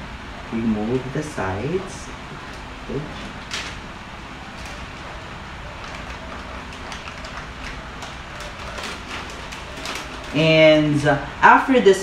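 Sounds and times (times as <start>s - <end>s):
glove package wrapper crinkling: 5.8s - 10.4s.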